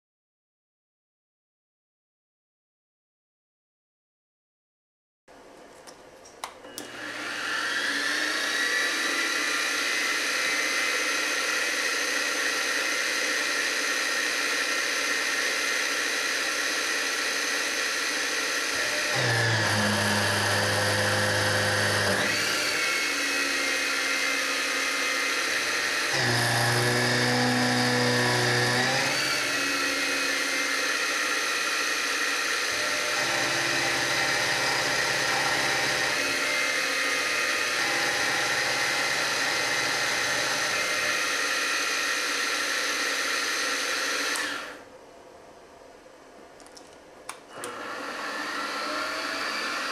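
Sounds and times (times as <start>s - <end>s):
milling machine whine: 6.6s - 44.8s, 47.5s - 49.9s.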